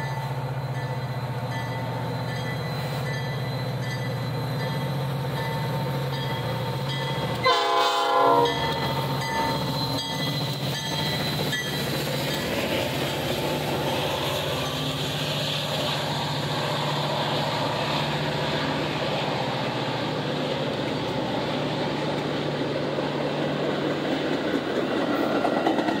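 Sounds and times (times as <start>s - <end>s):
train cars rolling past: 0.0s - 26.0s.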